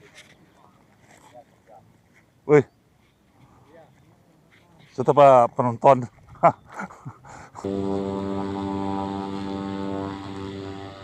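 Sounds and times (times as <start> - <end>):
propeller aircraft engine drone: 7.6 - 11.0.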